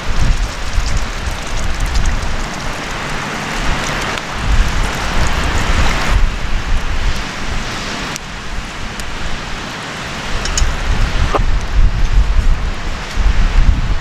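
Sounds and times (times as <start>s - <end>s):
water pouring into broth: 0.0s - 6.9s
wind rumble on microphone: 0.0s - 14.0s.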